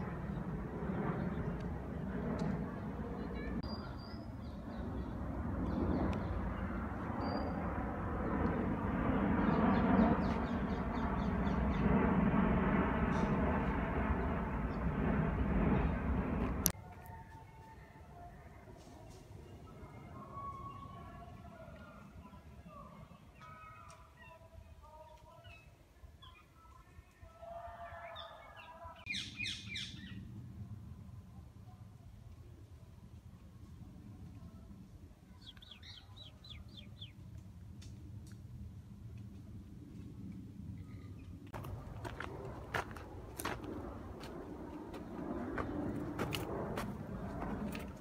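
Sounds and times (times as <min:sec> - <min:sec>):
jet airliner rumble: 0:00.0 - 0:16.8, 0:29.0 - 0:48.0
birds singing: 0:03.6 - 0:07.6, 0:09.4 - 0:12.0, 0:27.7 - 0:30.2, 0:35.4 - 0:37.2.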